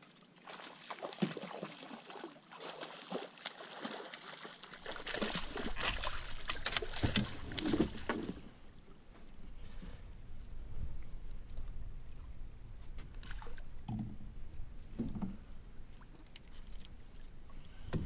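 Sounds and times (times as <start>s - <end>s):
water splashing against boat: 0.0s - 18.0s
low rumble: 9.5s - 16.1s.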